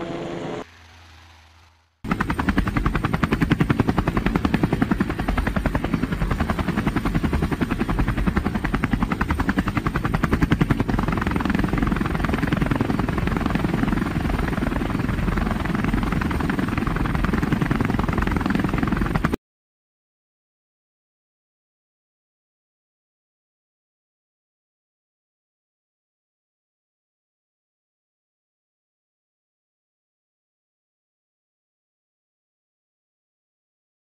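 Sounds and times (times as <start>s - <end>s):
helicopter rotors beating: 0.0s - 19.4s.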